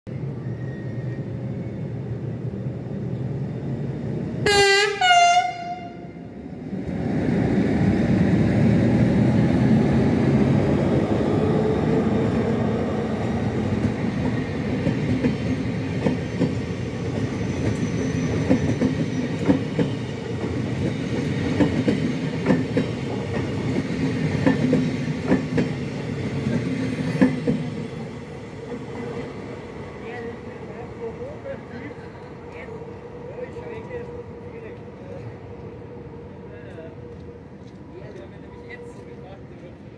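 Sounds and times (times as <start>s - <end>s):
two-tone train horn: 4.4s - 6.3s
train wheels clacking on rails: 13.5s - 27.9s.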